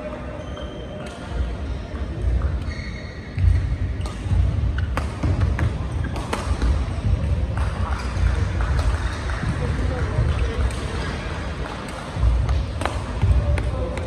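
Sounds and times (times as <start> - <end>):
shoe squeaks on court floor: 0.1 - 1.3, 2.4 - 5.0.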